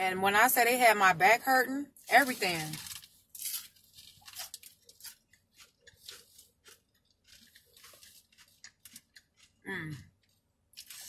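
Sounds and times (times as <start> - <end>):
crunchy taco shell chewing: 2.7 - 11.0.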